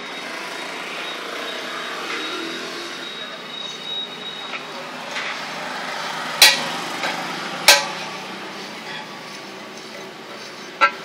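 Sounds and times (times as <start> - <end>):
steady background noise: 0.0 - 11.0
metallic clanks: 6.4 - 8.2, 9.8 - 11.0.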